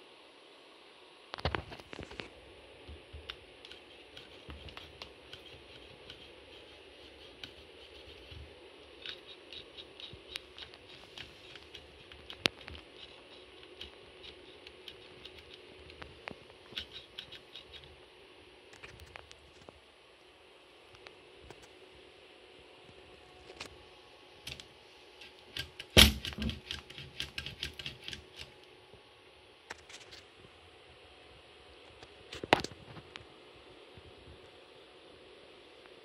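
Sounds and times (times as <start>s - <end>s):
clicks and taps of toy chassis: 25.5s - 28.5s.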